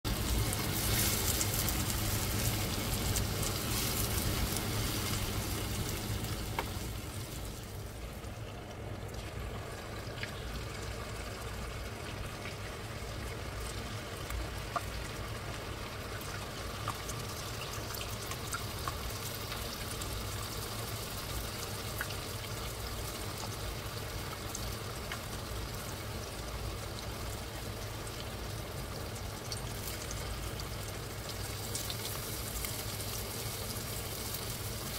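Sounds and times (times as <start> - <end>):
fish sizzling in oil: 0.1 - 34.9.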